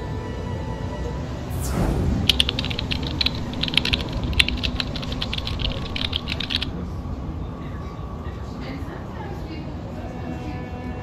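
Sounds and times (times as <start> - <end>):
low steady rumble: 1.5 - 7.4
keyboard typing clicks: 2.3 - 6.7.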